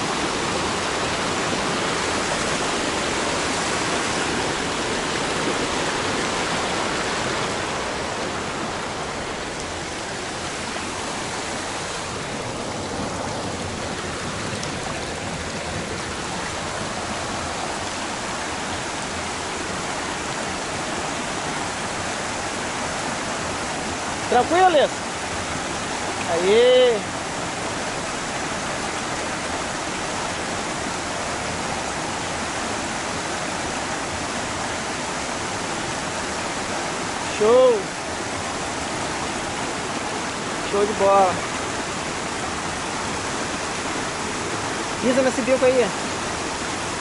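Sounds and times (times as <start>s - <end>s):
stream rushing over rocks: 0.0s - 47.0s.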